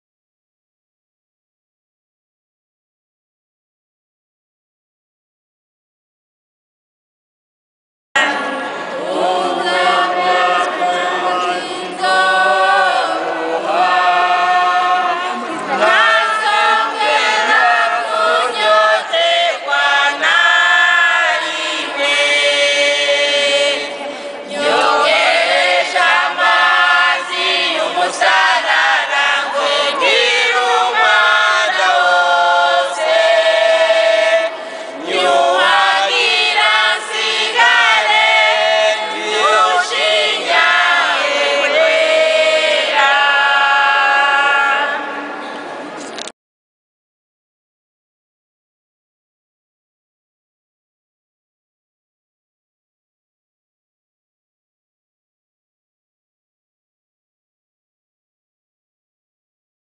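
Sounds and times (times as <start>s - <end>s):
congregation singing a hymn: 8.2s - 45.4s.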